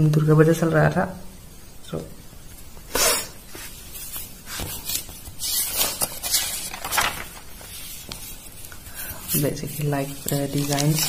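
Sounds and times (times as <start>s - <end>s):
paper pages rustling: 3.5s - 11.0s.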